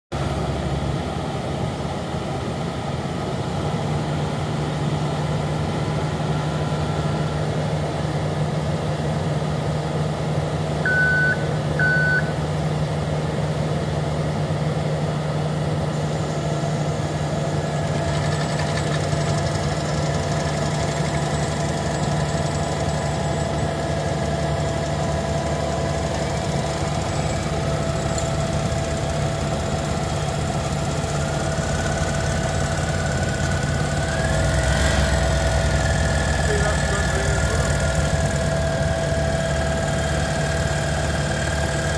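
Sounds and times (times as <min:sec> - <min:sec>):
mole plough engine running: 0:00.2 - 0:41.9
short beeps: 0:10.9 - 0:12.4.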